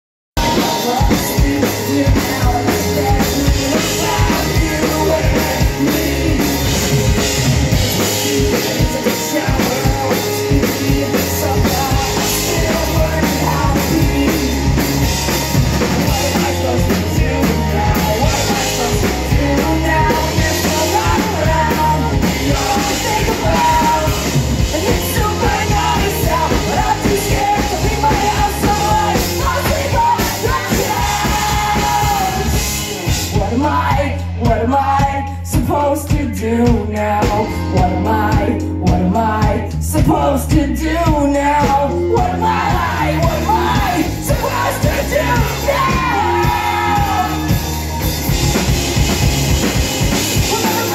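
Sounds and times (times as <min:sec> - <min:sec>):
punk rock band playing live: 0:00.4 - 0:50.9.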